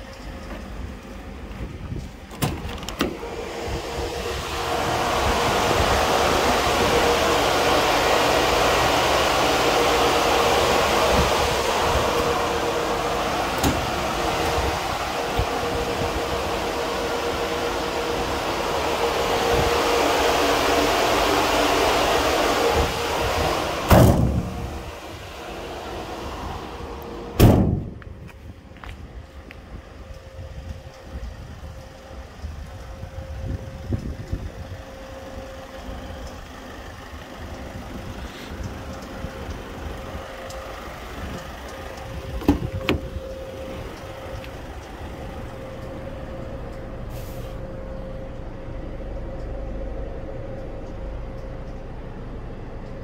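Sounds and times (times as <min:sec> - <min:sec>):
fan whirring with hum: 0:00.0 - 0:53.0
van doors slamming: 0:13.2 - 0:14.7, 0:23.9 - 0:24.7, 0:27.4 - 0:28.0, 0:42.3 - 0:43.2.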